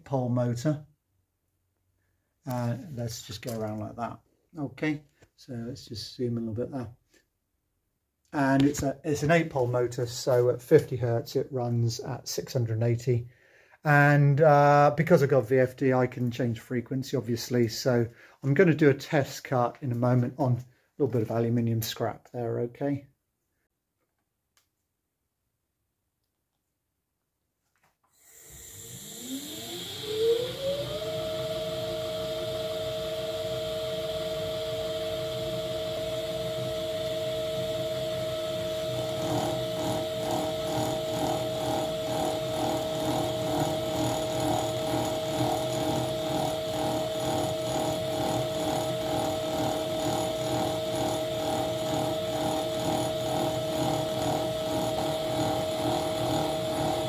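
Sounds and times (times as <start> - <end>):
milling machine motor whining: 28.2 - 57.0
cutter cutting metal rhythmically: 38.6 - 57.0.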